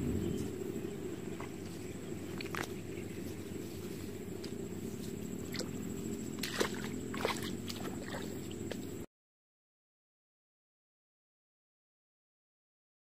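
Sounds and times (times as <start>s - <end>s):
wind rumbling on microphone: 0.0s - 9.0s
faint high whine: 0.0s - 9.1s.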